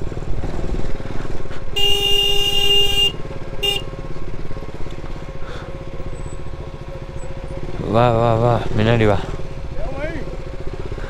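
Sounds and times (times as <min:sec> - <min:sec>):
motorcycle engine running: 0:00.0 - 0:11.0
vehicle horn blowing: 0:01.8 - 0:04.0.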